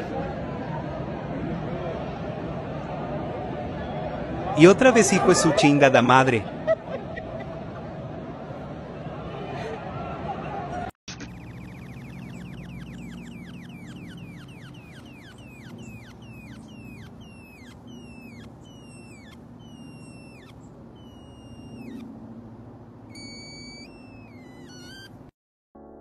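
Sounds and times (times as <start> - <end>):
falling whistle-like chirps: 11.1 - 22.1, 23.1 - 25.3
steady low hum: 11.2 - 25.1.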